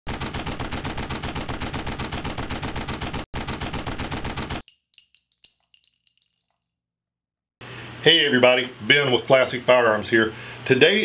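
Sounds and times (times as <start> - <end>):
automatic gunfire: 0.1 - 4.6
metallic clinks and pings: 4.6 - 6.8.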